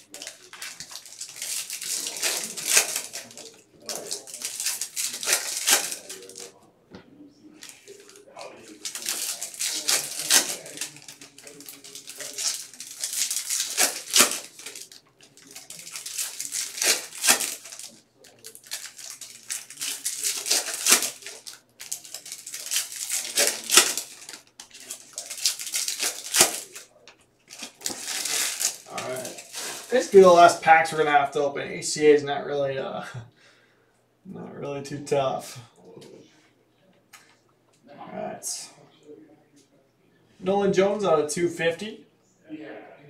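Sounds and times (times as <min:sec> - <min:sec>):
cards being handled: 0:00.0 - 0:06.5, 0:07.6 - 0:26.9, 0:27.5 - 0:30.4
foil wrappers crinkling and tearing: 0:00.0 - 0:06.6, 0:07.6 - 0:30.6.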